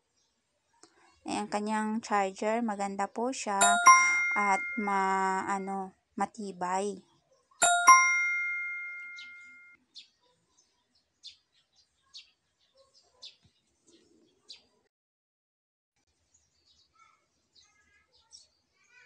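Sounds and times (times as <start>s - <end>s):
faint high chirps: 3.6s - 5.6s, 7.6s - 9.8s
two-note bell-like chime: 3.6s - 5.6s, 7.6s - 9.8s.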